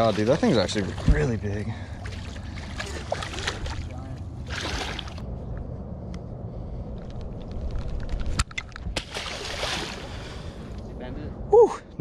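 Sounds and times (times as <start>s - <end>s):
low rumble: 0.9s - 12.0s
fish splashing at water surface: 2.0s - 5.2s, 9.0s - 10.3s.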